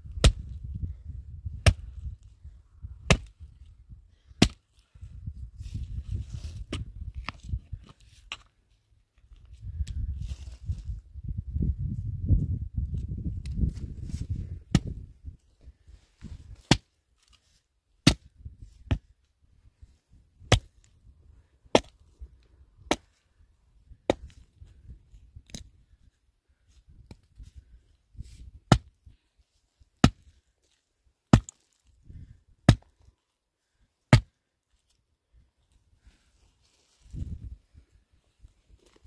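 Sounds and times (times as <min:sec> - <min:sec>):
axe chopping firewood: 0:00.0 - 0:00.6, 0:01.6 - 0:02.0, 0:03.0 - 0:03.4, 0:04.3 - 0:04.6, 0:06.7 - 0:07.4, 0:14.7 - 0:15.0, 0:16.5 - 0:17.0, 0:18.0 - 0:19.1, 0:20.4 - 0:20.8, 0:21.7 - 0:22.0, 0:22.8 - 0:23.2, 0:24.1 - 0:24.4, 0:28.6 - 0:29.0, 0:30.0 - 0:30.4, 0:31.3 - 0:31.7, 0:32.6 - 0:32.9, 0:34.1 - 0:34.4.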